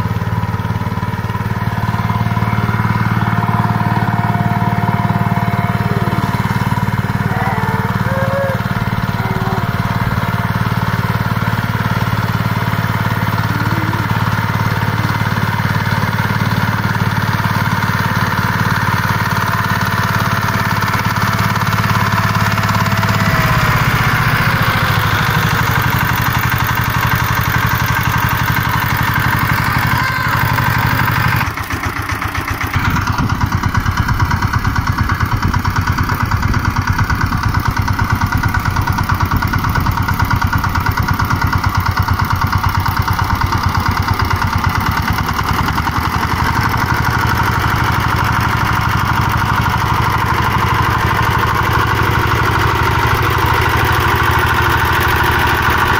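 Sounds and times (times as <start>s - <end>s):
diesel tiller engine chugging: 0.0s - 55.9s.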